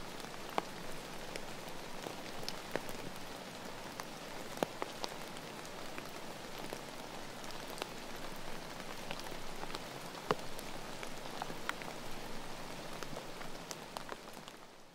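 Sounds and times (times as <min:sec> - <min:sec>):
steady rain hiss: 0:00.0 - 0:14.9.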